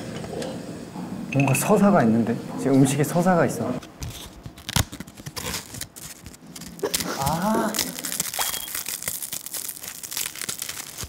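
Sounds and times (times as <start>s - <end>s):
snack packaging rustling and crinkling: 3.8s - 11.0s.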